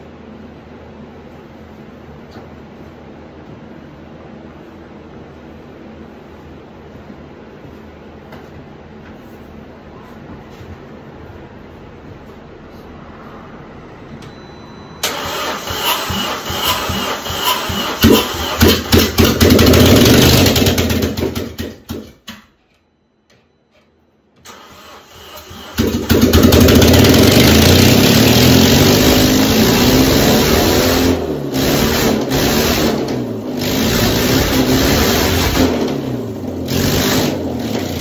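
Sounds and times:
car engine starting and revving: 15.0 - 21.7, 24.5 - 38.0.

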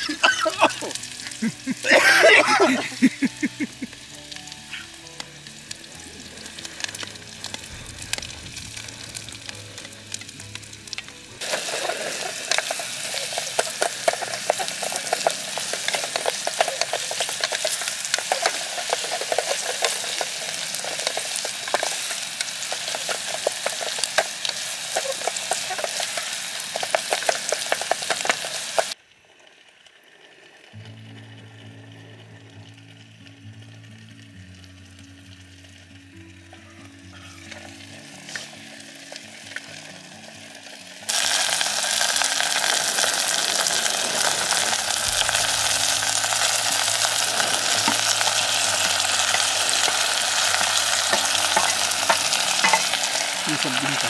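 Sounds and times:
soft background music: 0.0 - 24.8, 30.8 - 54.0
onions sizzling in hot oil: 0.0 - 29.0, 29.8 - 54.0
wooden spatula stirring: 11.4 - 28.3.

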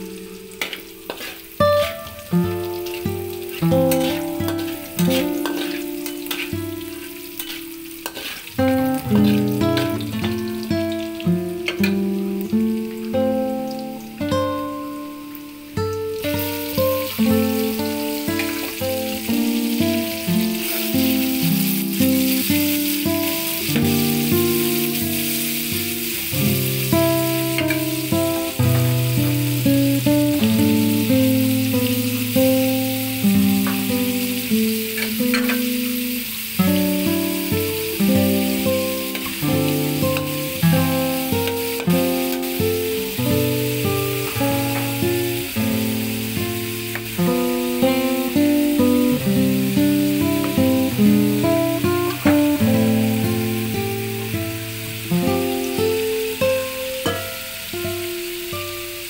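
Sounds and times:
background music melody: 0.0 - 59.0
garlic sizzling in oil: 0.0 - 59.0
spatula scraping metal wok: 0.6 - 2.1, 3.5 - 9.9.

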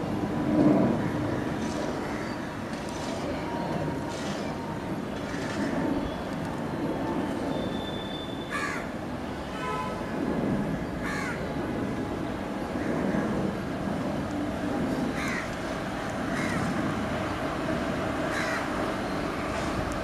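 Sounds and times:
jet plane rumble: 0.0 - 8.0, 10.0 - 20.0
crows cawing: 8.5 - 8.9, 11.0 - 11.4, 15.2 - 15.5, 16.3 - 16.7, 18.3 - 18.7.

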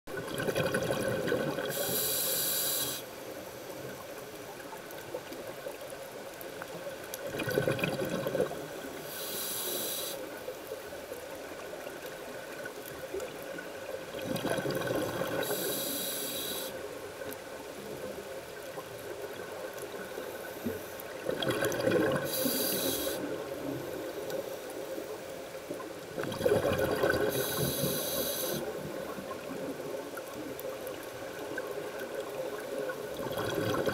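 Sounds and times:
faint underwater hum: 0.1 - 33.9
diver breathing through regulator: 1.6 - 3.1, 9.0 - 10.3, 15.4 - 16.8, 22.2 - 23.3, 27.2 - 28.8.

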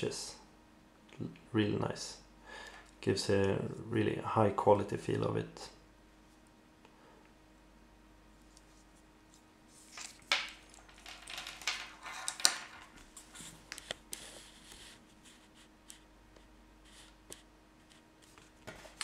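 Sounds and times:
cable rustling in hands: 8.4 - 16.0.

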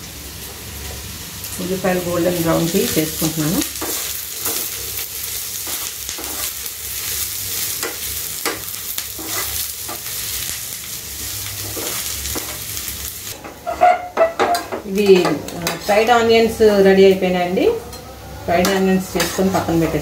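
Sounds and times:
onions sizzling in oil: 0.0 - 20.0
spoon scraping and tapping pan: 13.4 - 15.9.

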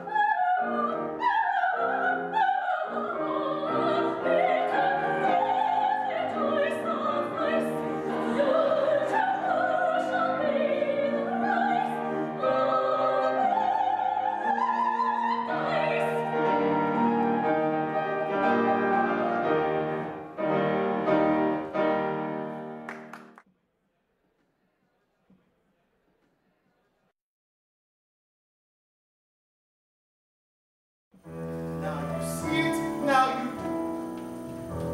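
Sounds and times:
soprano singing opera: 0.0 - 20.0
piano accompaniment: 0.0 - 23.4, 31.2 - 34.9.

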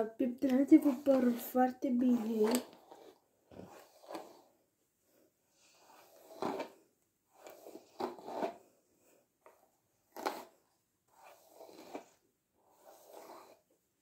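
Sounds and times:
hair being combed: 0.0 - 4.5, 5.6 - 8.6, 10.1 - 13.7.

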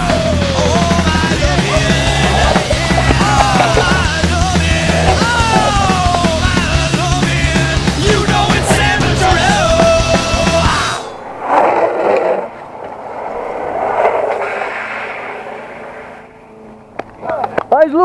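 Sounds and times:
rock music: 0.0 - 11.2
longboard wheels rolling on asphalt: 0.0 - 18.0.

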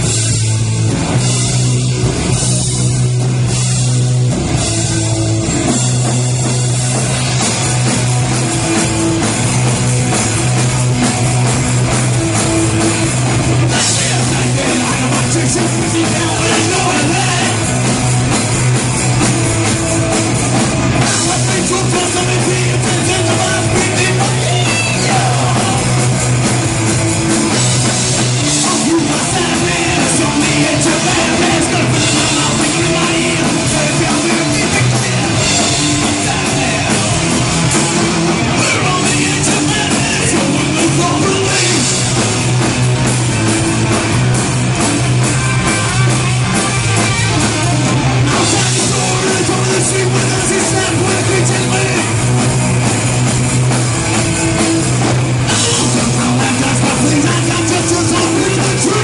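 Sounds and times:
bass guitar: 0.0 - 59.0
drum kit: 0.0 - 59.0
electric guitar: 0.0 - 59.0
person singing: 13.7 - 17.7, 21.0 - 26.0, 28.4 - 37.4, 38.5 - 42.0, 48.2 - 52.2, 55.5 - 59.0.

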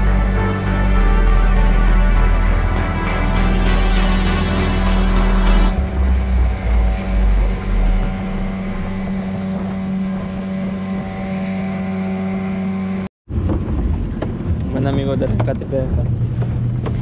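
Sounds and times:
outboard motor running: 0.0 - 17.0
wind buffeting microphone: 5.8 - 11.7.

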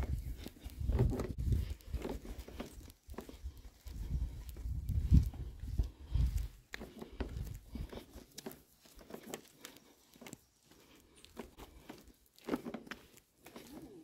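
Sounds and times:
footsteps on pavement: 0.0 - 14.0
soft ticks and crackles: 0.0 - 14.0.

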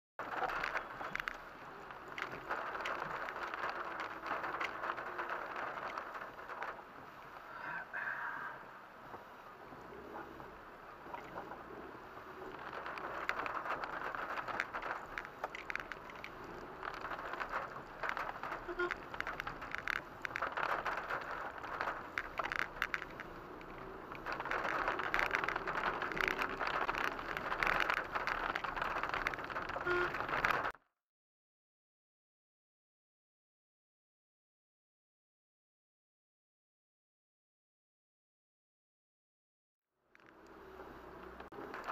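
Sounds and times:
raindrops pattering on windshield: 0.2 - 7.6, 10.3 - 30.8, 40.2 - 41.9.

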